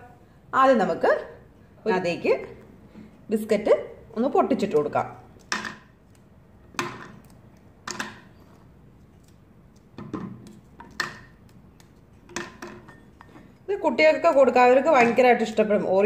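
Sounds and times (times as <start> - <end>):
biscuits snapping: 5.2 - 12.4.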